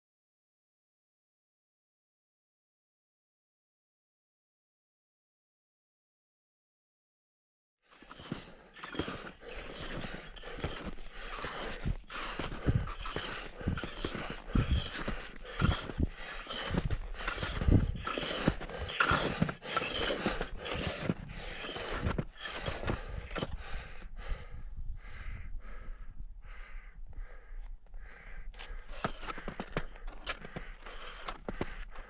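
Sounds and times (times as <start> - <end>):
footsteps: 8.0 - 23.5
person panting hard: 8.0 - 32.0.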